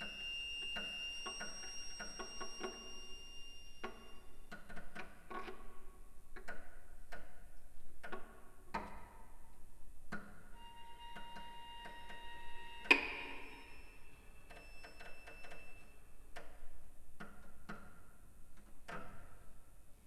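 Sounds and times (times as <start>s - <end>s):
high held violin note: 10.6s - 14.8s
sharp clicking string attacks: 12.8s - 13.8s.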